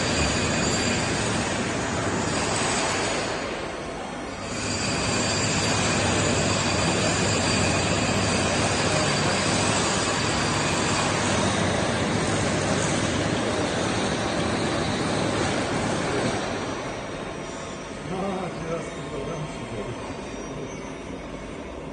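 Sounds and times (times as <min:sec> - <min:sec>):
faint high whine: 0:00.0 - 0:21.9
machine mechanical hum: 0:00.0 - 0:21.9.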